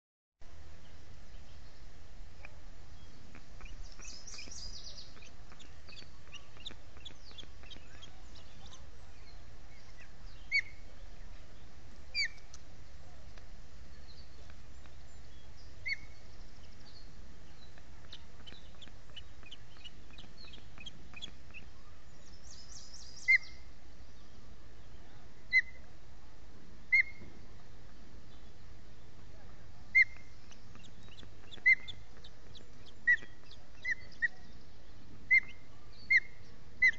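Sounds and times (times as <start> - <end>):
low background hum: 0.4 - 36.9
faint small-bird chips: 2.4 - 11.1
osprey chirps: 2.4 - 12.6, 13.2 - 24.4, 29.8 - 36.9
fast bird trills: 29.9 - 34.5.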